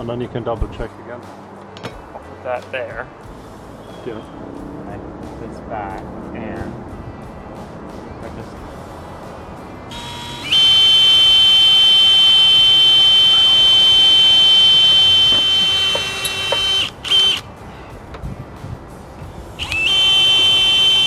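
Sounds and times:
cordless drill whining: 9.9s - 17.4s, 19.6s - 21.0s.

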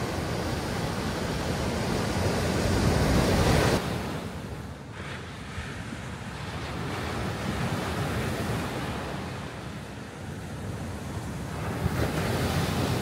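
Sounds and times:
waves breaking ashore: 0.0s - 13.0s.

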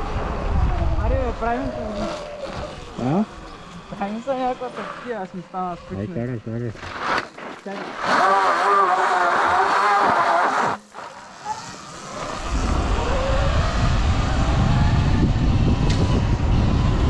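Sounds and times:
wind rumble on microphone: 0.0s - 3.0s, 12.1s - 17.0s
electric motorbike motor whining: 0.0s - 7.0s, 7.9s - 17.0s.

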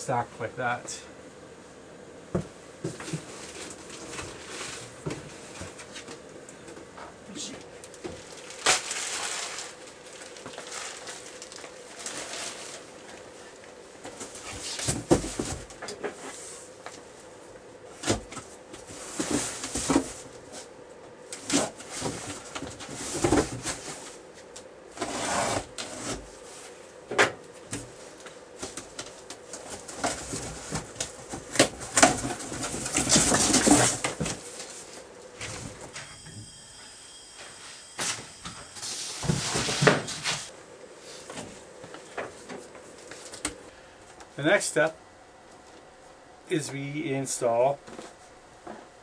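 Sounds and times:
cardboard scraping and rustling: 2.8s - 6.1s, 8.0s - 13.2s, 18.0s - 20.7s, 21.4s - 24.2s, 24.9s - 26.8s, 28.6s - 36.0s, 38.8s - 40.5s.

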